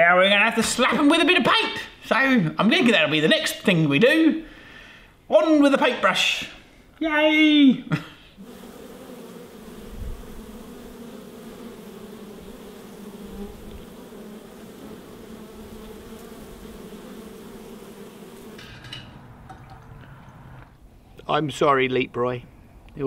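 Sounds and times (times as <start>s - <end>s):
honey bees buzzing: 8.4s - 20.8s.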